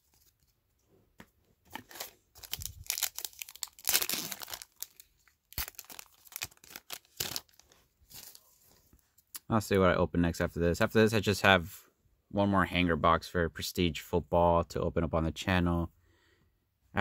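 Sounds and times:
wrapper tearing and crinkling: 1.8 - 8.4.

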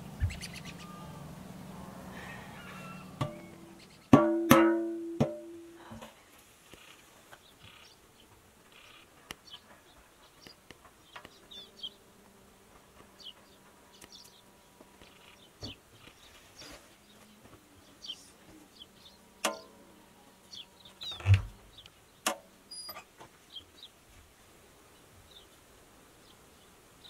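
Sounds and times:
faint steady buzz: 0.0 - 27.0
high bird chirps: 0.2 - 1.2.

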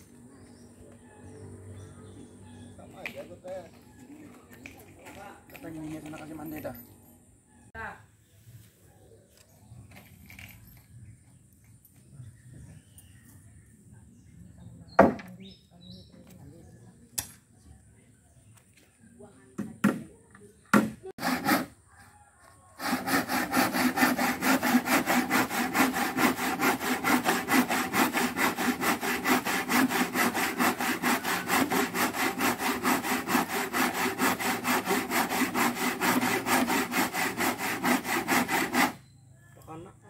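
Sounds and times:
hand saw cutting wood: 20.8 - 21.8, 22.8 - 39.0.

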